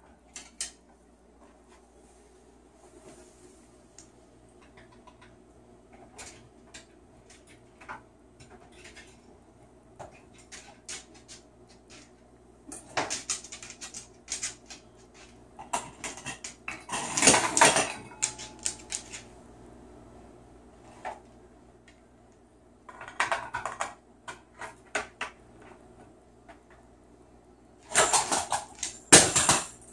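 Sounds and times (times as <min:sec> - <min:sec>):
claws clicking on tiled floor: 0:10.0 - 0:19.3, 0:27.8 - 0:29.9
bowls clattering: 0:12.7 - 0:19.3.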